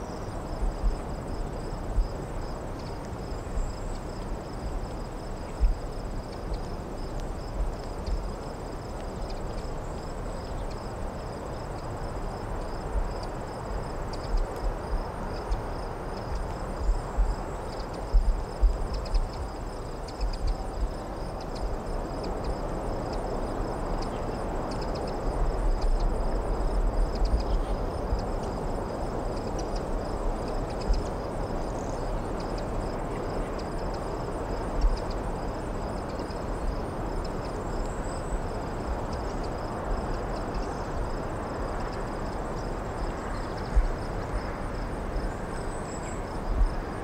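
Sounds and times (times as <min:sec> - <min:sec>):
crickets chirping: 0:00.0 - 0:47.0
wind buffeting microphone: 0:00.1 - 0:47.0.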